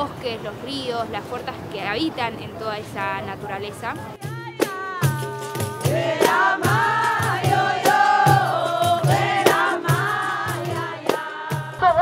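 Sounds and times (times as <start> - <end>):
voices singing a chant-like song: 3.9 - 12.0
hand drums: 4.2 - 11.9.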